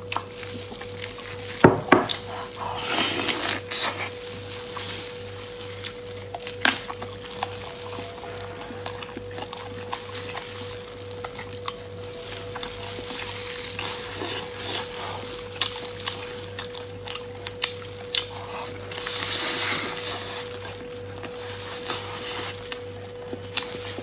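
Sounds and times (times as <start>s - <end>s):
faint hum: 0.0s - 24.0s
person chewing meat: 0.0s - 24.0s.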